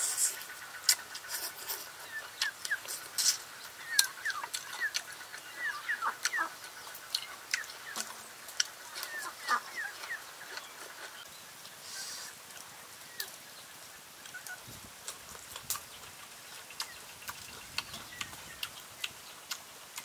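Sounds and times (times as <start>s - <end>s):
person chewing and lip-smacking: 0.8s - 5.1s, 5.7s - 9.1s, 15.0s - 20.0s.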